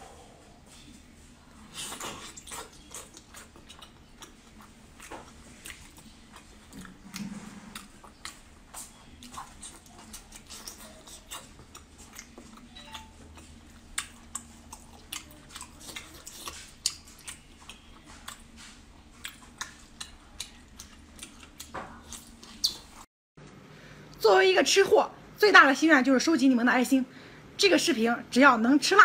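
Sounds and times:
wet chewing and smacking: 1.7 - 23.0.

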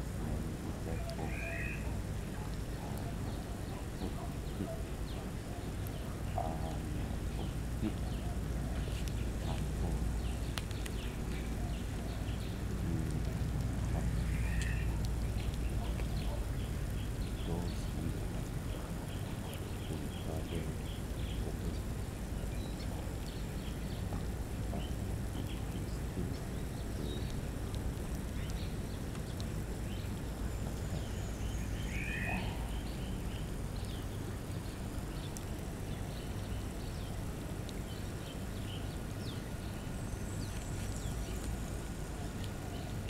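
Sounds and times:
steady low rumble: 0.0 - 43.0
animal chirps: 0.9 - 2.0, 7.4 - 18.1, 30.9 - 33.2.

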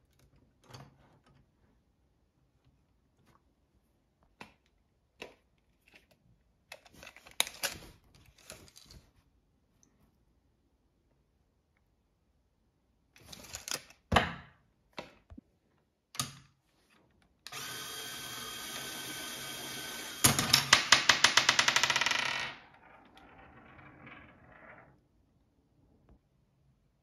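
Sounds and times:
small electric motor whine: 17.5 - 20.3.

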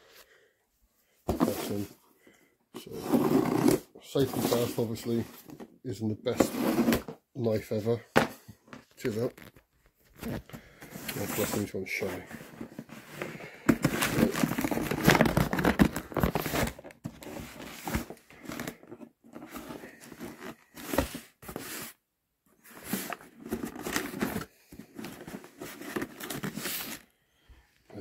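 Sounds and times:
box flaps rustling: 1.3 - 1.9, 9.1 - 22.0, 22.6 - 27.0.

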